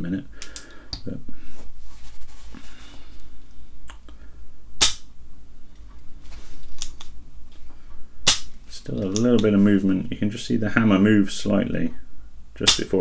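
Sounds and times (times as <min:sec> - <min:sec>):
sharp spring hammer snap: 0:04.8 - 0:05.1, 0:08.2 - 0:08.6, 0:12.7 - 0:12.9.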